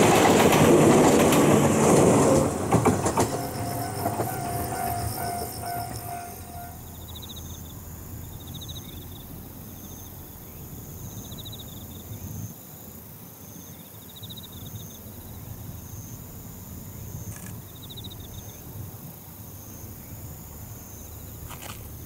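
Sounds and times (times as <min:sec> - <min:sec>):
insects chirping: 0:01.0 - 0:22.0
high insect trill: 0:02.4 - 0:12.4.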